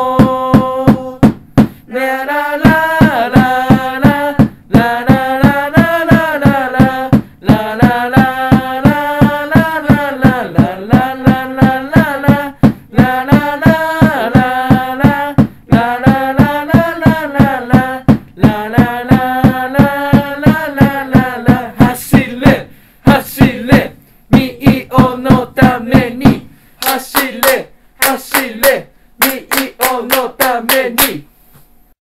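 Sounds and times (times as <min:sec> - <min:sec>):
steady drum beat: 0:00.0 - 0:31.3
football supporters chanting: 0:20.1 - 0:31.2
hand claps: 0:25.3 - 0:31.2.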